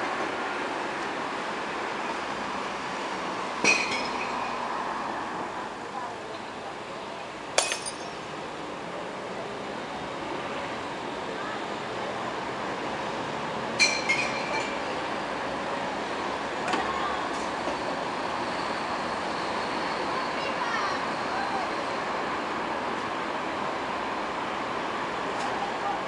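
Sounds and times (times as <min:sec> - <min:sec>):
distant traffic: 0:00.0 - 0:26.0
bright clink: 0:07.6 - 0:08.2.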